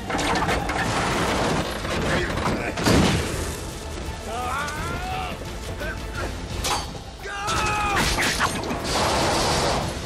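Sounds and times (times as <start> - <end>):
metal clanks and rattles: 6.5 - 9.6.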